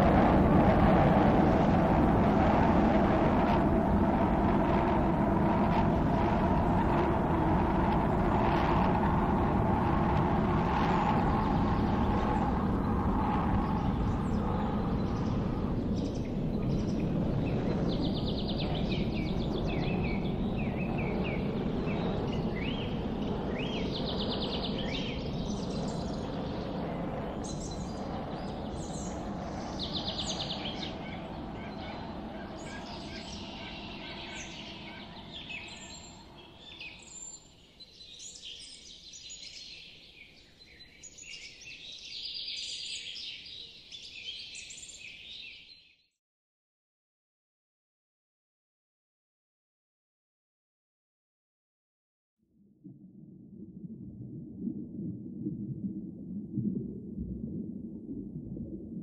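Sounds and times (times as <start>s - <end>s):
low rumbling noise: 0.0s - 37.3s, 52.6s - 59.0s
birds chirping: 27.4s - 37.7s.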